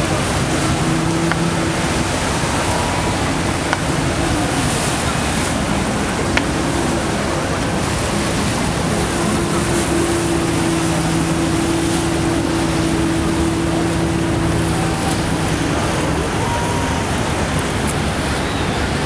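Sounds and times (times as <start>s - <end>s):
boat engines droning: 0.0s - 19.0s
choppy river water: 0.0s - 19.0s.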